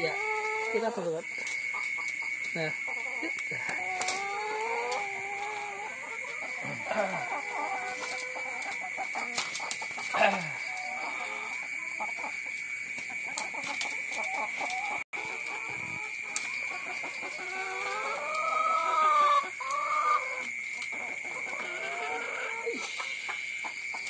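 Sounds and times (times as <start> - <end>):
hens clucking: 0.0 - 24.0.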